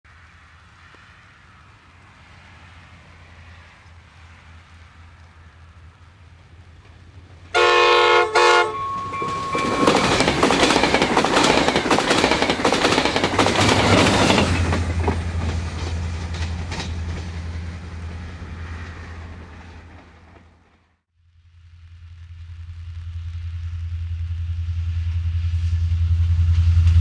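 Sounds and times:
diesel locomotive drone: 0.1 - 27.0
train horn blasts: 7.5 - 10.6
train wheels clicking over rail joints: 8.8 - 20.7.

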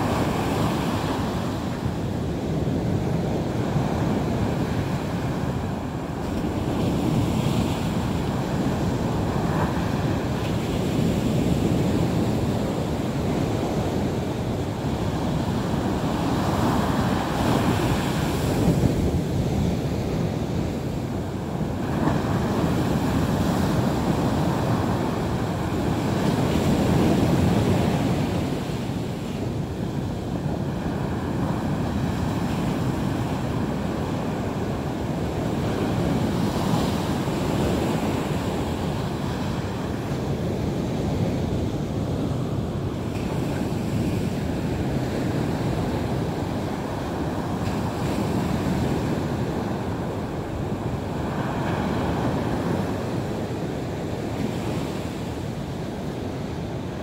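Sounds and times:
sea waves breaking on shore: 0.0 - 57.0.

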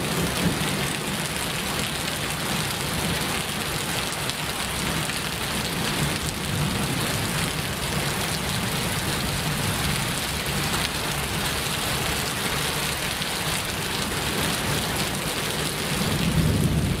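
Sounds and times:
heavy rain falling: 0.0 - 17.0.

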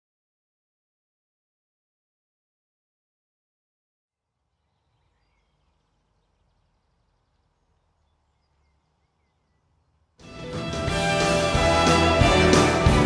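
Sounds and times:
faint bird chirps: 4.4 - 10.2.

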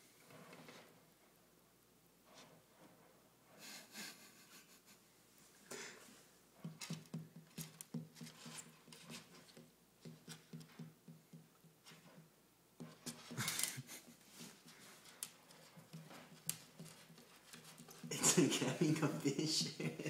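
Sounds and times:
cat scratching in bedding: 12.8 - 18.9.

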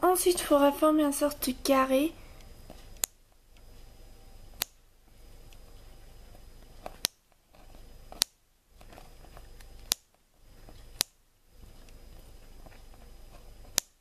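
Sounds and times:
low steady hiss: 0.0 - 14.0
sharp clicks: 2.4 - 3.8, 4.5 - 4.8, 6.6 - 7.4, 9.5 - 10.2, 13.6 - 14.0
fingers pressing soft clay: 5.4 - 14.0.

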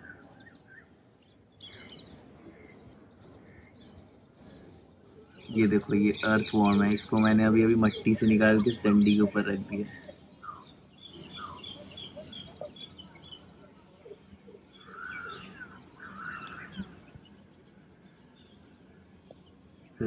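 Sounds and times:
lower bird calls: 0.0 - 20.0.

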